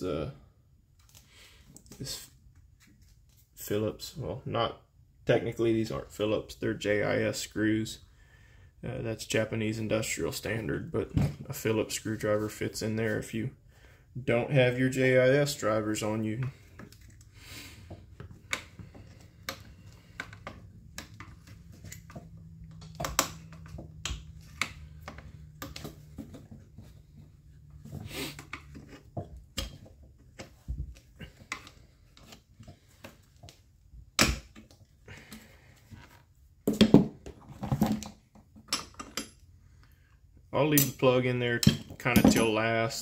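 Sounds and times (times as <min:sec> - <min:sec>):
plastic parts and tools clattering: 0:34.2 - 0:39.4.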